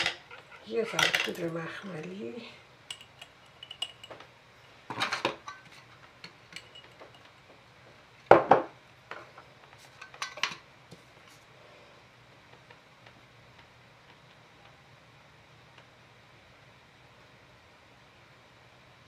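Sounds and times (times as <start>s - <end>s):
glass jar clinking on metal strainer: 2.9s - 4.2s, 6.6s - 7.3s.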